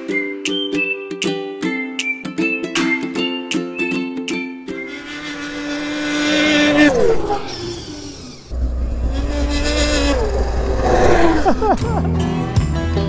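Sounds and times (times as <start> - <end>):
snowmobile engine revving: 4.8 - 12.1
low rumble: 7.2 - 12.0.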